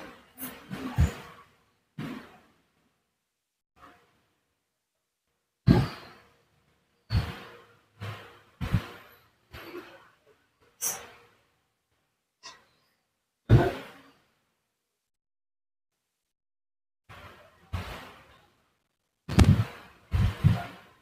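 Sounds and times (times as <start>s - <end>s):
sharp thumps and knocks: 5.7s - 6.2s, 7.1s - 9.9s, 13.5s - 14.0s, 19.3s - 21.0s.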